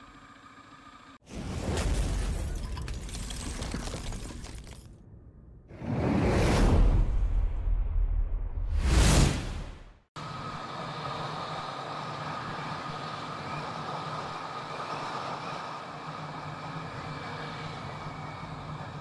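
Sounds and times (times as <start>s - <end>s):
road noise: 10.2s - 19.0s.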